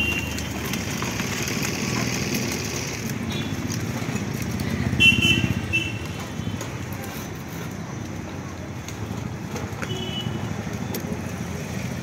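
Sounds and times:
road noise: 0:00.0 - 0:12.0.

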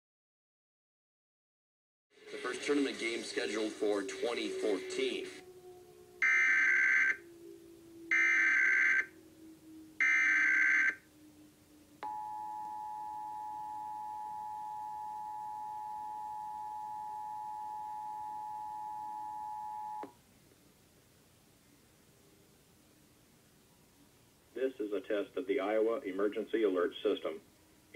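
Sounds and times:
two-tone attention signal: 0:06.2 - 0:09.1, 0:10.0 - 0:11.0, 0:12.0 - 0:20.1.

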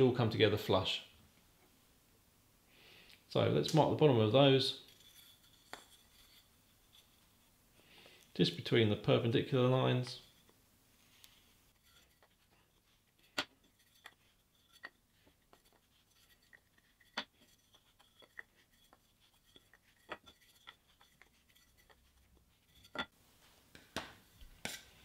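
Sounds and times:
marking gauge scratching wood: 0:11.7 - 0:23.1.

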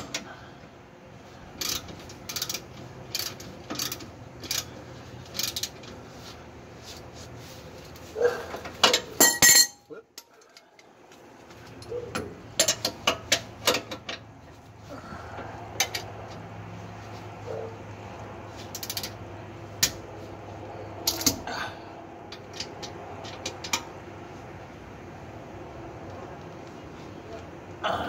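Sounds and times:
hand tools clicking on metal: 0:01.6 - 0:04.7, 0:18.7 - 0:19.2, 0:21.0 - 0:21.4.

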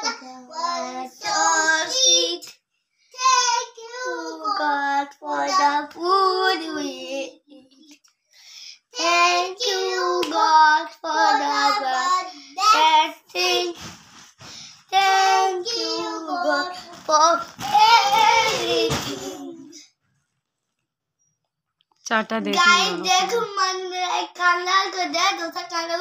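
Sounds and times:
boy singing unaccompanied: 0:00.0 - 0:02.5, 0:03.2 - 0:07.9, 0:08.9 - 0:13.8, 0:14.9 - 0:19.8, 0:22.4 - 0:26.0.

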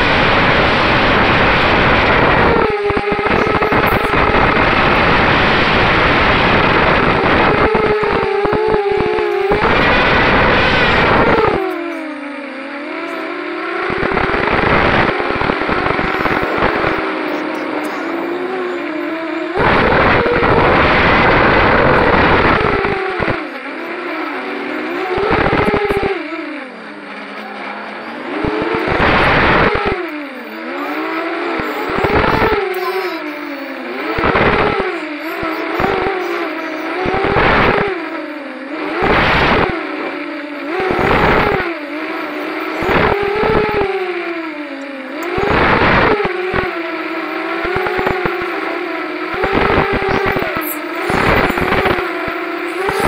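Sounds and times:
drone motors whining: 0:00.0 - 0:53.0
rush of motor and wind noise: 0:00.0 - 0:53.0.

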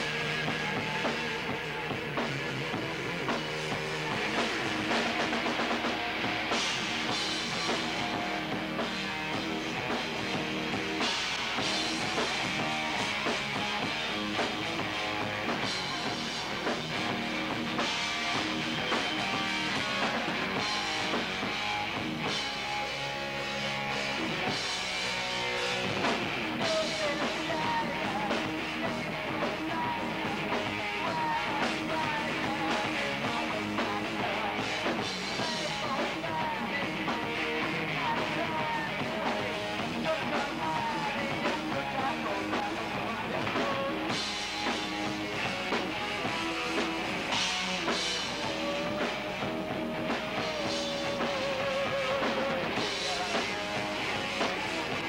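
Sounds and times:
live rock band playing: 0:00.0 - 0:55.0
person singing: 0:26.6 - 0:55.0.

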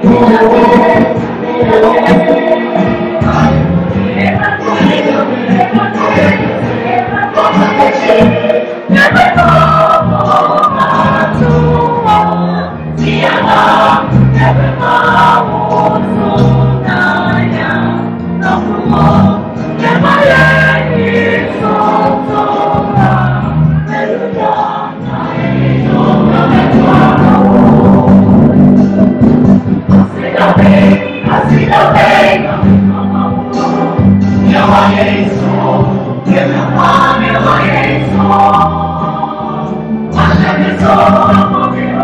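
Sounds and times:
a cappella group singing: 0:00.0 - 0:42.0
bass voice singing low notes: 0:00.0 - 0:42.0.

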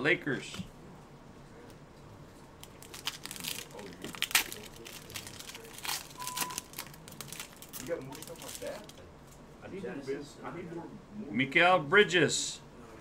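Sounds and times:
foil wrapper crinkling and tearing: 0:02.6 - 0:09.0.

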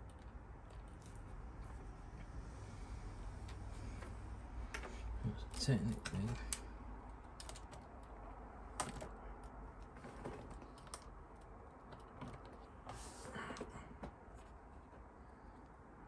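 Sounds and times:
plastic parts clicking: 0:04.7 - 0:12.7
rustling scrape: 0:12.8 - 0:13.4.

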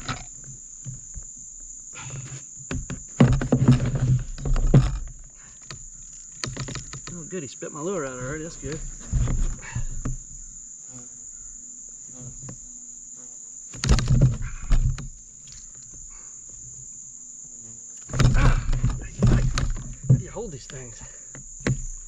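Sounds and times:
thumps and knocks against kayak: 0:00.0 - 0:07.3, 0:08.0 - 0:11.1, 0:13.7 - 0:16.9, 0:18.0 - 0:22.0
high insect buzz: 0:00.0 - 0:22.0.

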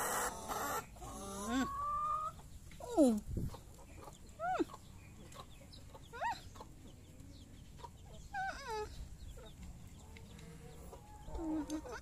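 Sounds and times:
hens calling: 0:00.0 - 0:06.9.

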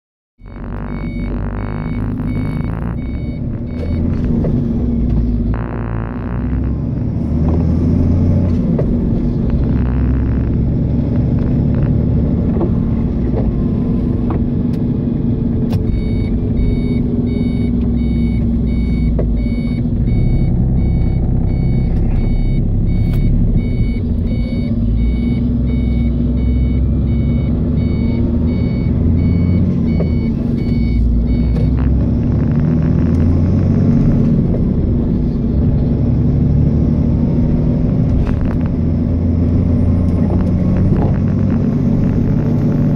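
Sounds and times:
electronic warning beep: 0:00.4 - 0:07.4, 0:15.8 - 0:32.5
car engine and road rumble: 0:00.4 - 0:42.9.

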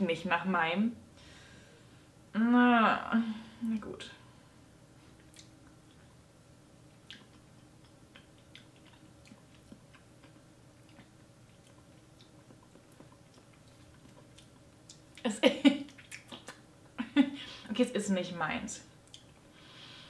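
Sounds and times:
lip smacks and tongue clicks: 0:05.2 - 0:06.0, 0:07.0 - 0:16.7, 0:19.0 - 0:19.5
woman laughing loudly: 0:17.0 - 0:17.5.

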